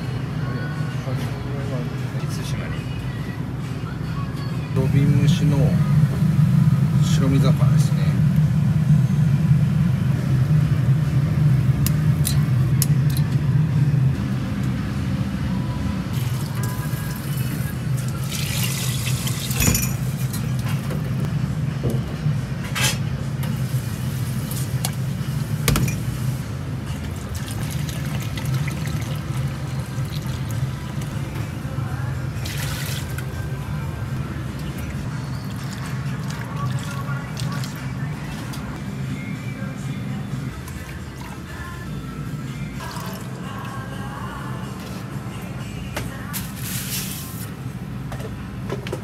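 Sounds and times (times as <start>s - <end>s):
low rumble of burner or ventilation: 0.0s - 49.0s
pots and utensils clinking: 18.4s - 21.0s.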